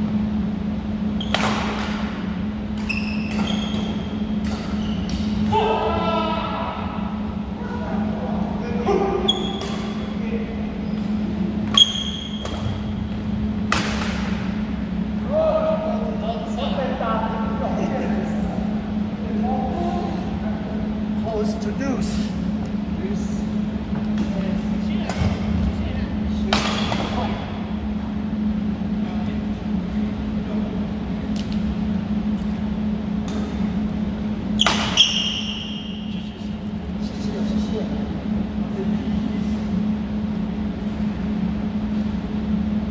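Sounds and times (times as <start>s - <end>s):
steady low hum: 0.0s - 42.9s
racket hitting shuttlecock: 1.3s - 2.1s, 2.8s - 5.4s, 13.6s - 14.4s, 26.5s - 27.2s, 34.6s - 35.2s.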